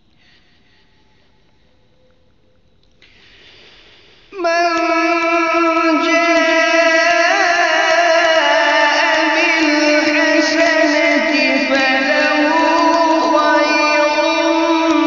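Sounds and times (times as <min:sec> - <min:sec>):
faint hiss: 0:00.0 - 0:05.8
person reciting melodically: 0:04.3 - 0:15.0.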